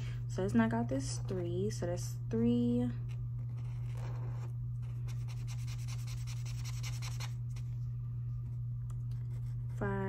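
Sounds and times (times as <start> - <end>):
steady low hum: 0.0 - 10.0
marker scribbling on paper: 5.1 - 7.3.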